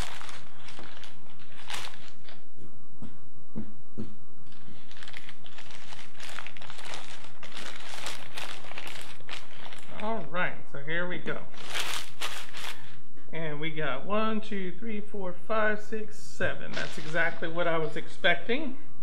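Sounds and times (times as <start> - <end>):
newspaper crinkling: 0.0 - 2.4, 4.5 - 10.3, 11.5 - 13.0, 16.7 - 17.6.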